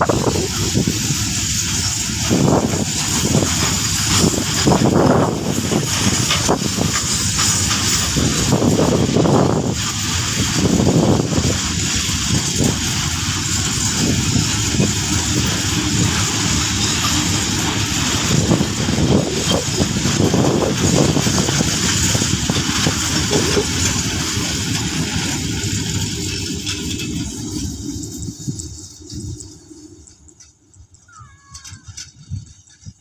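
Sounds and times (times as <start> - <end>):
freight train rolling past: 0.0 - 33.0
wheels clattering on rails: 0.0 - 33.0.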